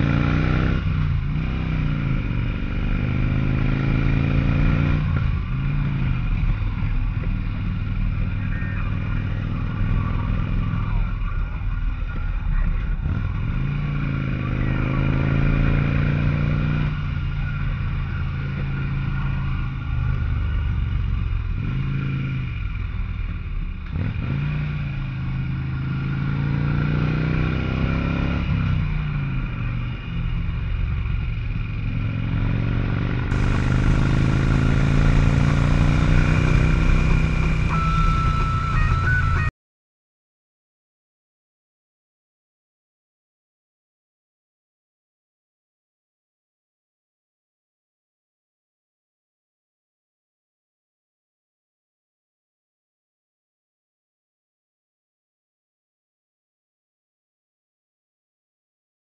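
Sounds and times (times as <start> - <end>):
motorcycle engine under load: 30.4 - 39.0.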